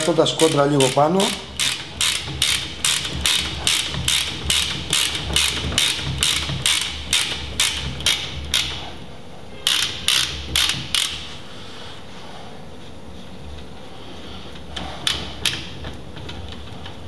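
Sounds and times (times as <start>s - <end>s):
ratchet clicking: 0.0s - 9.0s, 9.6s - 11.3s.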